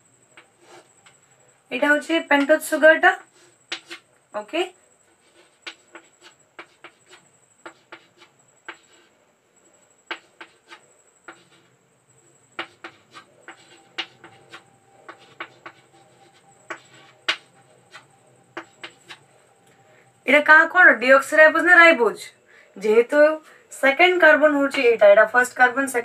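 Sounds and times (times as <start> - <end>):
faint high-pitched whine: 0.0 - 26.0
pen scratching on paper: 0.4 - 1.2, 3.2 - 4.1, 5.0 - 9.1, 10.0 - 11.8, 12.4 - 19.3.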